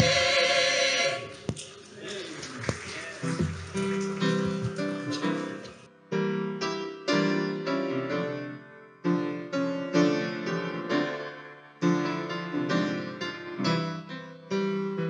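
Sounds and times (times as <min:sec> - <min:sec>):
piano playing slow chords: 0:03.7 - 0:15.0.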